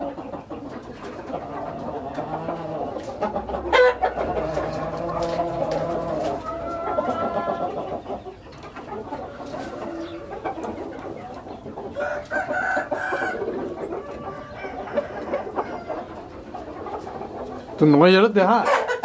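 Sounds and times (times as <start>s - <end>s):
rooster crowing: 3.6s - 7.8s, 12.0s - 16.1s.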